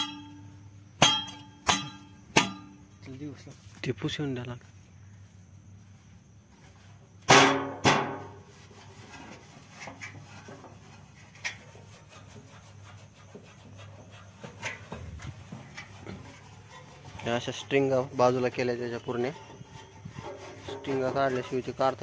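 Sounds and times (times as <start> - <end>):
metallic clangs: 0.0 - 2.9
cloth rubbing on metal: 8.4 - 22.0.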